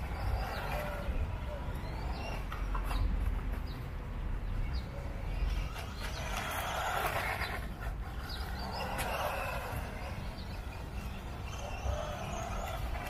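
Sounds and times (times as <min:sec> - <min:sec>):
rc car motor and tyre hiss: 0:05.4 - 0:13.0.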